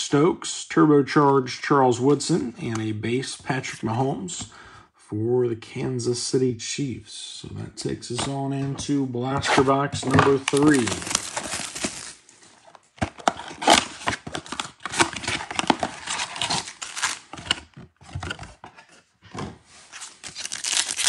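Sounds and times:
cardboard box tearing: 9.4 - 12.2, 13.1 - 18.4, 19.9 - 21.0
foil packs crinkling: 10.0 - 12.8, 13.5 - 17.3, 20.2 - 21.0.

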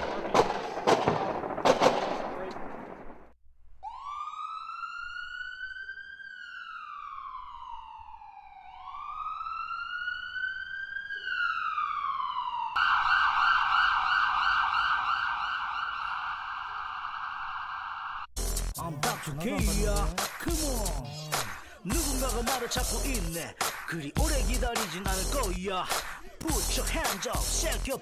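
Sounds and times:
electronic siren wailing: 3.8 - 18.3.

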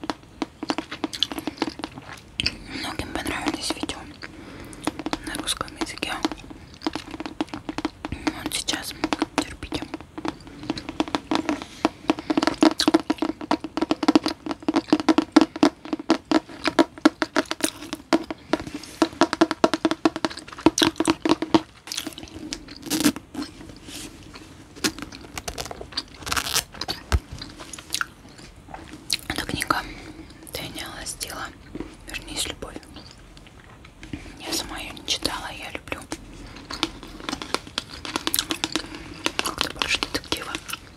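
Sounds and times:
fingernails tapping on book cover: 4.8 - 21.7.

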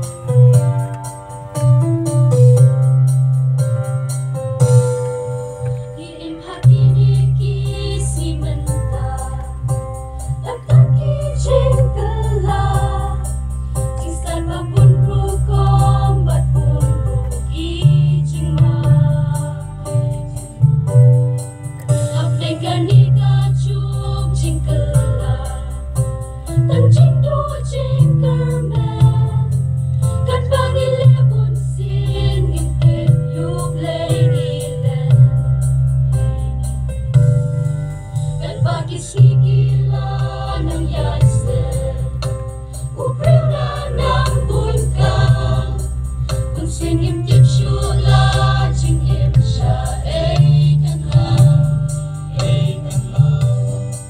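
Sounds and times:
choir singing a hymn: 5.6 - 20.6, 22.0 - 35.7, 38.4 - 54.0.

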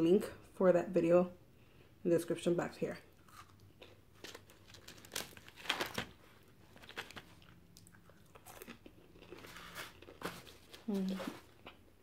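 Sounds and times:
person chewing fries: 3.1 - 12.0.

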